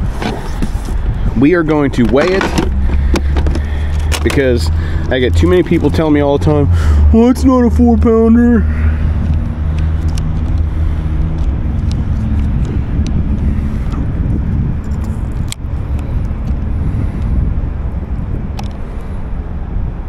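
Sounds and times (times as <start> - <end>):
steady low rumble: 0.0 - 20.0
clicks and taps of handled gear: 2.0 - 4.5, 9.2 - 13.2, 18.6 - 18.8.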